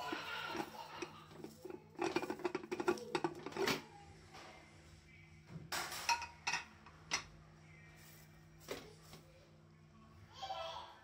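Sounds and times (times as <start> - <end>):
metal pot lid clanking: 0.0 - 3.8, 6.0 - 7.3.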